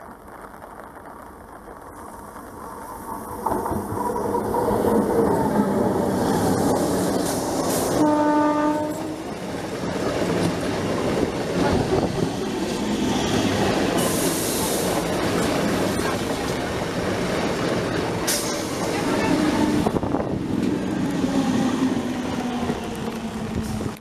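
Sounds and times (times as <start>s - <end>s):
train rumbling and clattering over rails: 1.4s - 24.0s
train horn blast: 7.9s - 9.4s, 19.0s - 20.1s.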